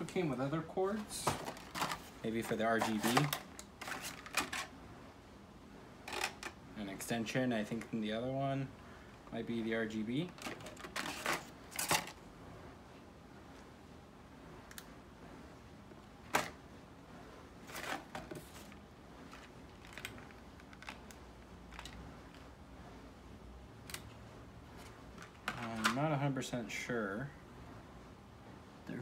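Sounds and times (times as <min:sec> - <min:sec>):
plastic packaging tray crinkling: 0:01.0 - 0:04.7, 0:10.2 - 0:12.2.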